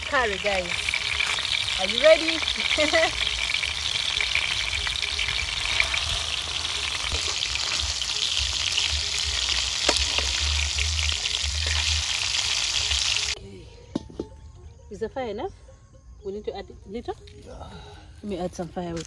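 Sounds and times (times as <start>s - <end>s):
fish sizzling in a frying pan: 0.0s - 13.4s.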